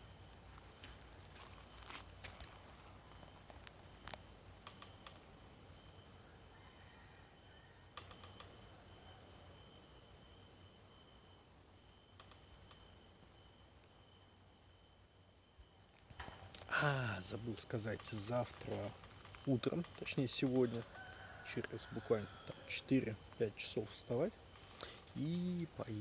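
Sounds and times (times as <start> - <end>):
insects trilling: 0.0 - 26.0
lower insect trill: 0.0 - 26.0
faint clicks: 4.1 - 5.2.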